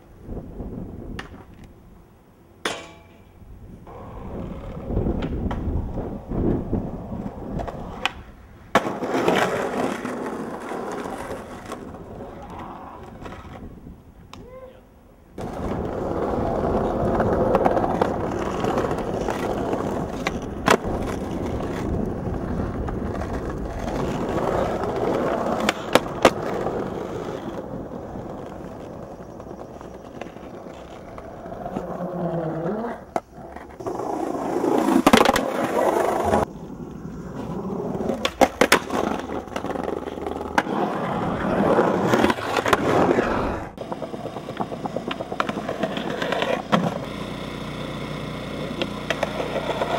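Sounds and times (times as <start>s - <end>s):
skateboard wheels rolling on concrete: 0.0s - 49.9s
skateboard clacking: 2.6s - 3.3s, 3.9s - 13.6s, 15.4s - 32.0s, 37.4s - 49.9s.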